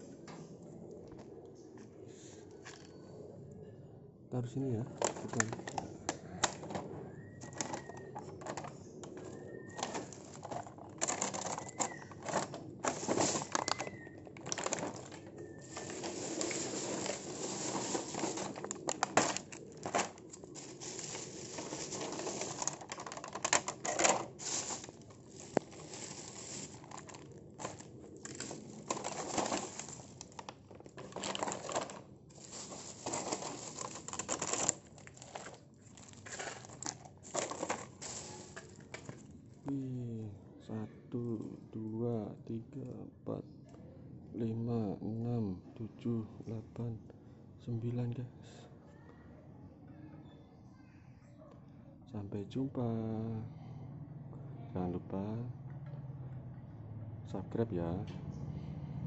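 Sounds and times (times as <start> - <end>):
plastic packaging crinkling: 4.9 - 39.4
bird whistling: 7.1 - 8.2, 9.2 - 9.9, 11.6 - 12.2, 13.6 - 14.2.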